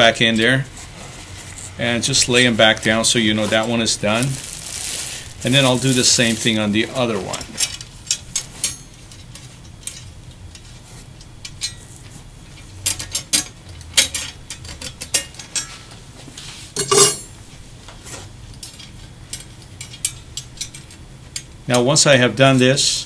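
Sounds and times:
metal parts clattering: 0:01.6 - 0:10.2, 0:12.8 - 0:15.8, 0:16.8 - 0:17.3
small metal parts clinking: 0:07.3 - 0:10.6, 0:12.6 - 0:15.8, 0:16.8 - 0:17.3.

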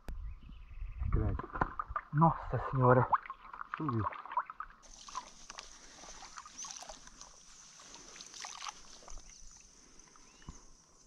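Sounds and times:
water sloshing from wading: 0:02.9 - 0:10.2.

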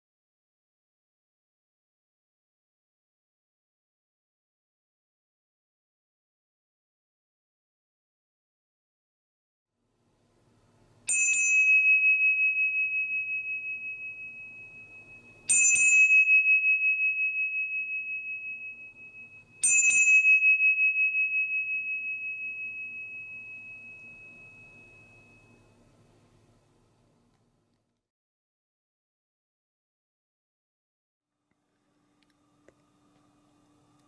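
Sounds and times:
small bell ringing: 0:11.1 - 0:25.9.

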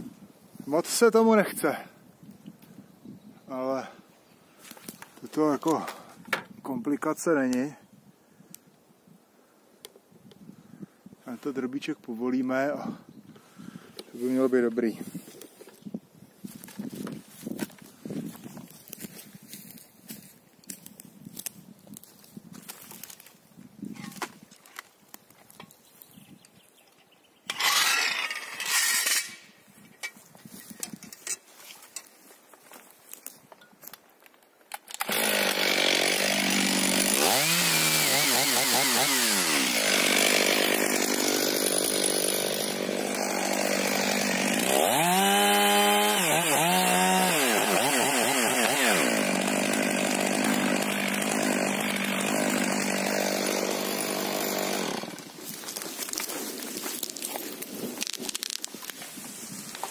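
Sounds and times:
chainsaw cutting a tree: 0:27.5 - 0:29.3, 0:35.0 - 0:58.7.

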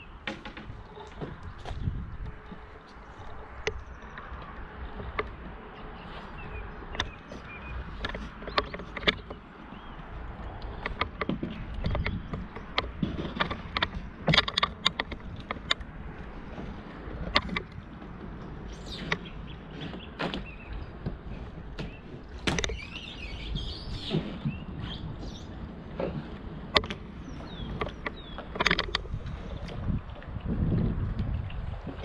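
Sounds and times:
wooden hull knocking and scraping: 0:00.2 - 0:32.0
bird chirping: 0:21.8 - 0:25.5.

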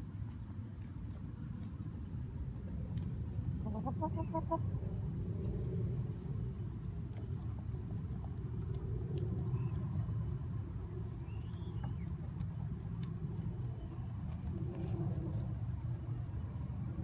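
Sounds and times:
hens scratching in soil: 0:00.0 - 0:03.3, 0:12.0 - 0:16.4.

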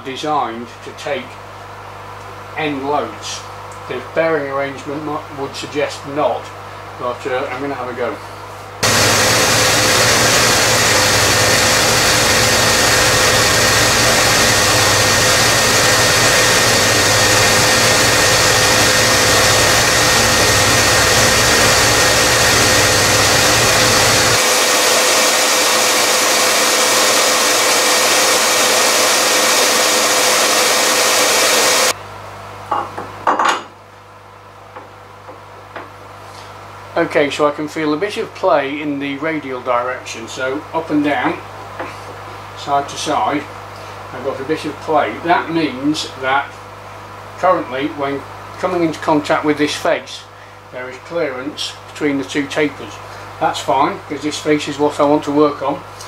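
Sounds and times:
deep machine hum: 0:08.8 - 0:31.9
grinder hissing: 0:08.8 - 0:32.0.

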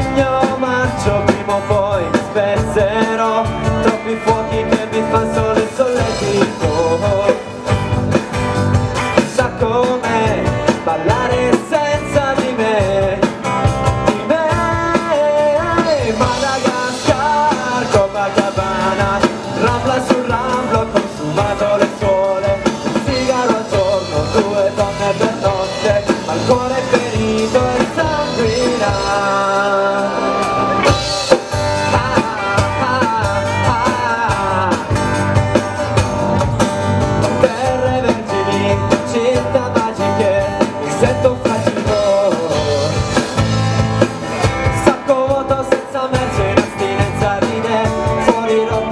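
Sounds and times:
live rock band playing: 0:00.0 - 0:48.9
man singing lead vocal: 0:00.0 - 0:48.9.

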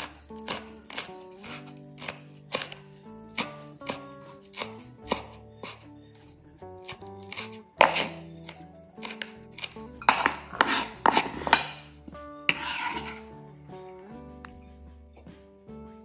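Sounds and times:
knife chopping on wooden board: 0:00.0 - 0:05.8, 0:06.7 - 0:13.2.

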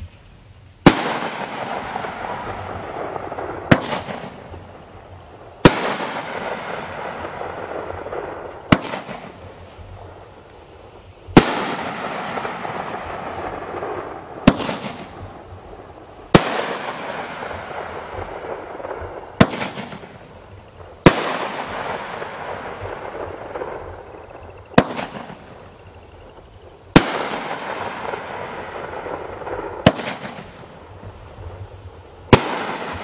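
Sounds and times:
firework crackling tail: 0:00.0 - 0:33.0
firework bangs: 0:00.8 - 0:33.0.

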